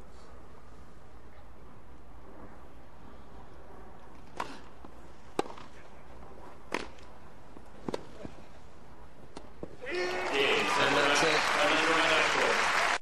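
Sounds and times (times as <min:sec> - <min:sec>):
tennis ball struck by rackets: 0:05.3 - 0:05.7.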